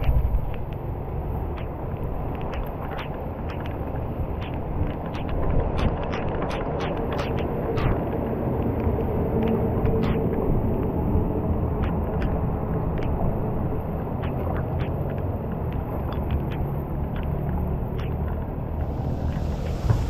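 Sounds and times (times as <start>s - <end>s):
raindrops: 0.0s - 20.0s
water rumbling into a drain: 18.8s - 20.0s.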